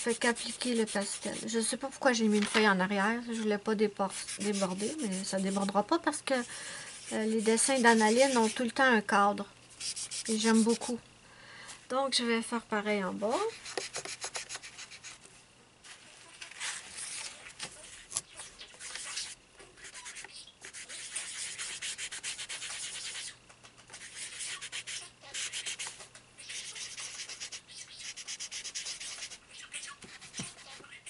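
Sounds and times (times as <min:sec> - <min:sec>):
pastel rubbing on paper: 0:00.0 - 0:02.0, 0:04.1 - 0:05.8, 0:06.4 - 0:08.7, 0:09.8 - 0:11.0, 0:18.7 - 0:30.8.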